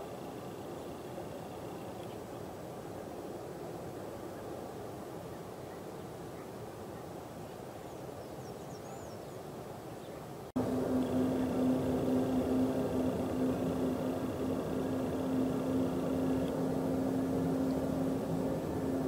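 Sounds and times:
jet engines roaring at takeoff: 0:10.6 - 0:19.0.

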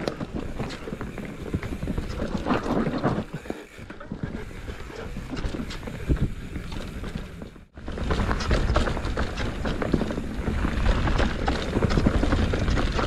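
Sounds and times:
mountain bike rattling over rocks: 0:00.0 - 0:13.0.

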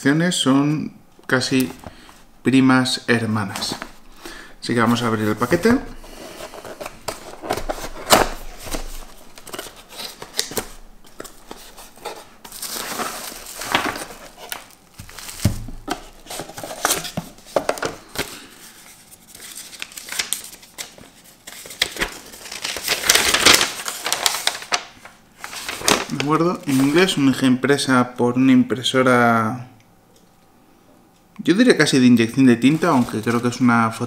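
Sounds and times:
paper rustling: 0:03.5 - 0:27.2, 0:32.6 - 0:33.6
bubble wrap crinkling: 0:04.8 - 0:17.8, 0:18.8 - 0:27.1.

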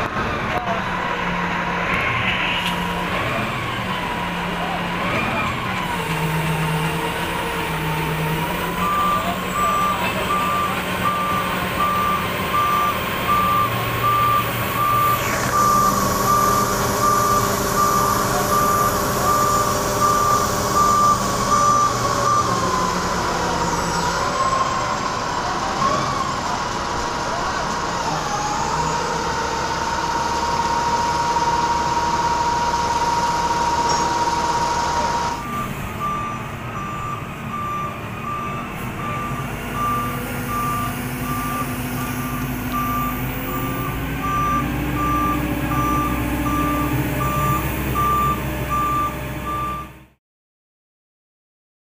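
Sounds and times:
crane engine running: 0:00.0 - 0:50.1
repeating electronic beep: 0:35.3 - 0:49.9.

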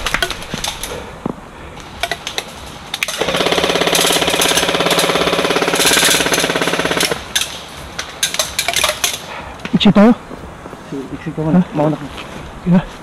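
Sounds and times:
airsoft gun full-auto burst: 0:03.1 - 0:07.7.

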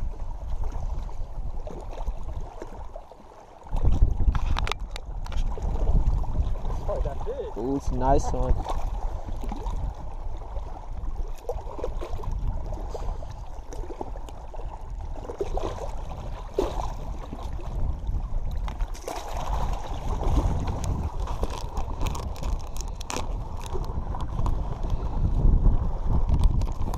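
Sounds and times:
wind buffeting the microphone: 0:00.0 - 0:03.0, 0:03.6 - 0:26.9
small waves lapping on rocks: 0:00.0 - 0:26.9
fish splashing in water: 0:18.6 - 0:23.9.

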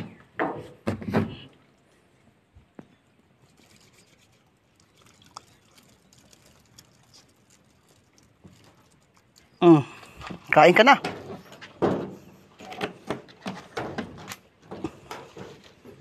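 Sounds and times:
hands rubbing together: 0:03.4 - 0:08.7.

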